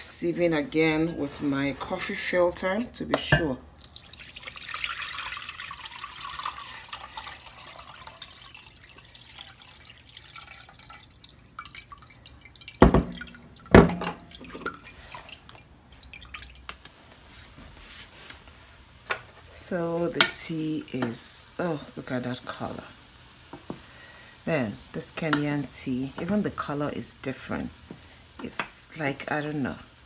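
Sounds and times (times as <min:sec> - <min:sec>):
water pouring and splashing: 0:03.8 - 0:16.8
water trickling and dripping: 0:03.8 - 0:16.9.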